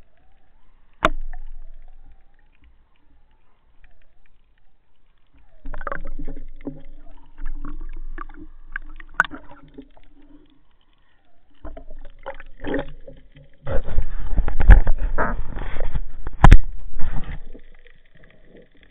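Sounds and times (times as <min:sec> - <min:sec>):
water sloshing against camera housing: 0:11.7 - 0:18.0.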